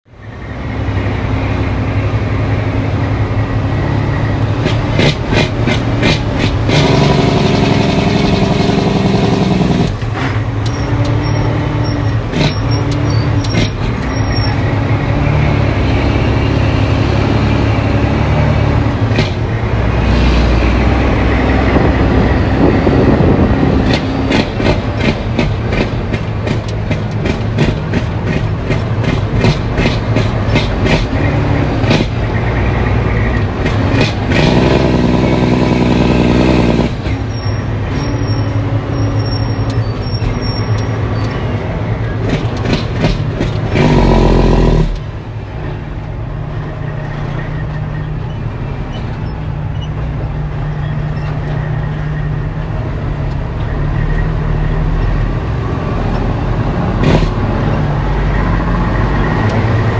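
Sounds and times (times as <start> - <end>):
diesel truck engine running: 0.1 - 59.9
truck cab rattling: 21.2 - 34.4.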